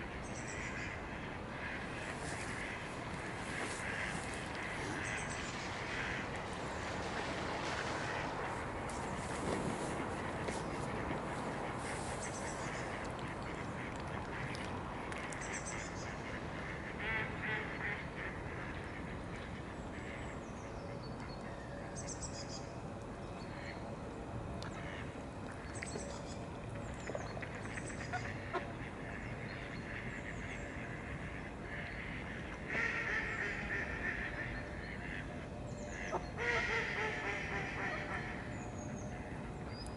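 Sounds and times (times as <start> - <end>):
steady background noise: 0.0 - 39.9
ducks calling: 1.6 - 6.3, 28.0 - 38.5.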